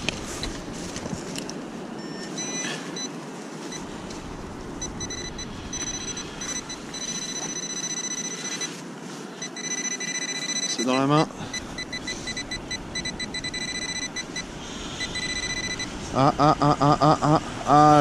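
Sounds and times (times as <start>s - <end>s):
metal detector pinpointer beeping: 2.0s - 3.1s, 4.8s - 8.8s, 9.4s - 15.9s
steady low rush: 3.0s - 9.6s, 10.8s - 18.0s.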